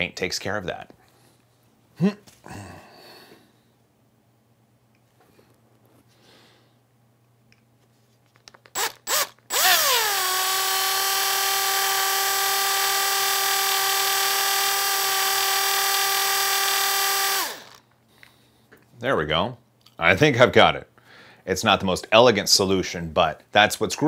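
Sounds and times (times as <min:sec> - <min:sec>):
cordless drill drilling plastic: 0:08.7 - 0:17.8.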